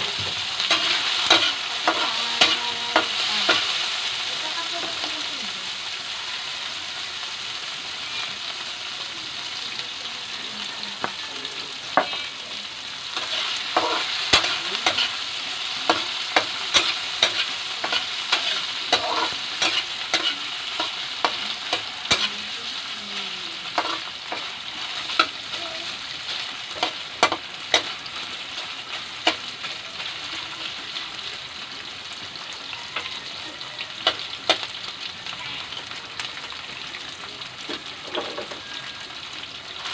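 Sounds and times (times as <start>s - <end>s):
meat sizzling in a wok: 0.0s - 39.9s
metal spatula scraping a pan: 0.5s - 3.7s, 13.1s - 22.9s, 23.6s - 29.8s.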